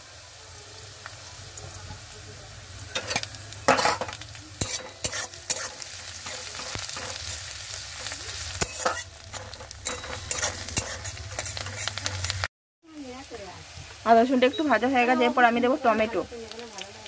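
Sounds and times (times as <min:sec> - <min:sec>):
vegetables sizzling in oil: 0:00.0 - 0:17.0
metal spatula scraping a pan: 0:02.9 - 0:12.5.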